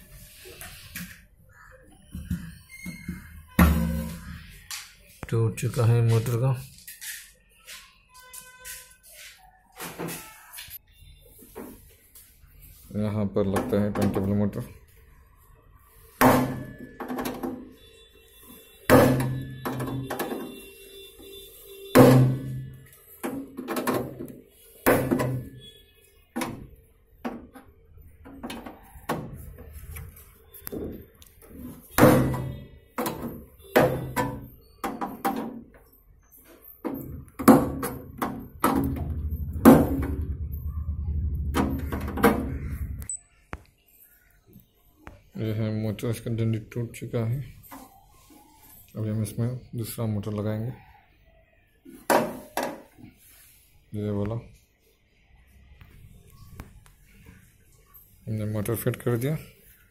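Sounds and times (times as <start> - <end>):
steady low hum: 38.8 - 43.2.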